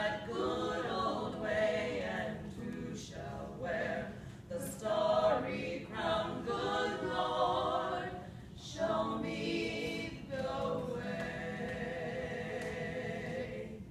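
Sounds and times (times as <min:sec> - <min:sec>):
choir singing: 0:00.0 - 0:13.9
singers breathing: 0:04.1 - 0:04.5, 0:08.2 - 0:08.6.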